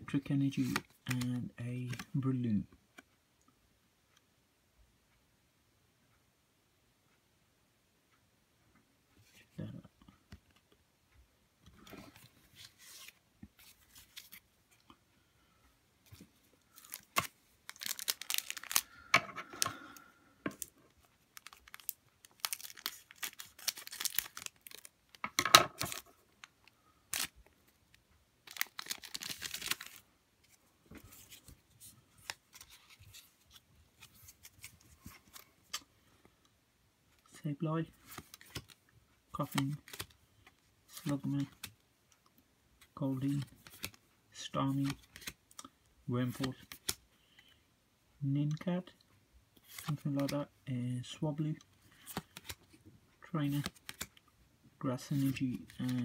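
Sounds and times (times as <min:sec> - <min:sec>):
playing cards clicking: 0:00.6 - 0:02.2, 0:49.7 - 0:50.3
foil wrapper crinkling: 0:16.7 - 0:19.7, 0:21.4 - 0:24.9, 0:28.4 - 0:30.0.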